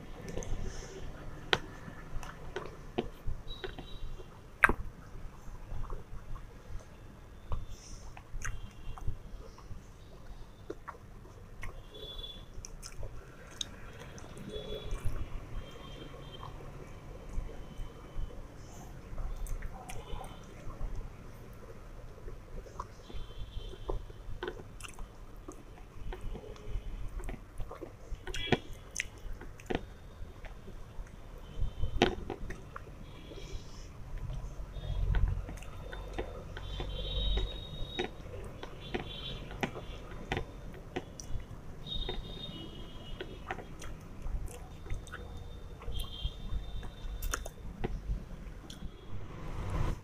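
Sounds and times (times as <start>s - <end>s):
mouth chewing food: 0.0s - 48.9s
mouth clicks: 4.6s - 4.8s, 43.1s - 46.2s, 46.8s - 48.0s
wet mouth clicks and smacks: 4.6s - 4.8s, 7.5s - 9.1s, 12.6s - 15.2s, 27.2s - 30.6s, 43.2s - 46.0s, 46.8s - 48.0s.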